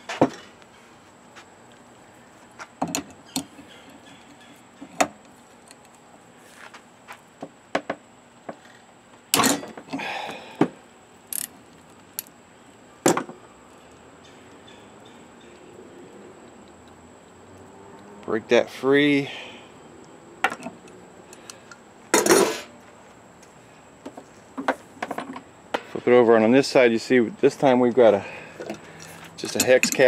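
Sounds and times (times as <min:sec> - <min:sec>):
hand tools clinking on metal: 0:28.6 - 0:30.0.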